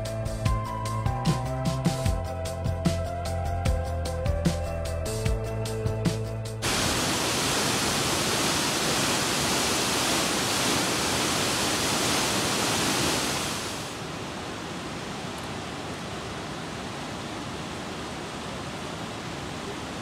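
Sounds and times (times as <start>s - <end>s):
music: 0.0s - 6.6s
waterfall rushing: 6.6s - 20.0s.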